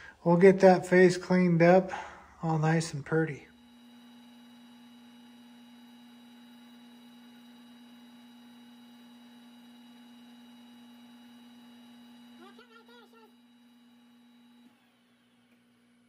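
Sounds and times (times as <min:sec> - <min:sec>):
metal lathe hum: 0:03.5 - 0:16.0.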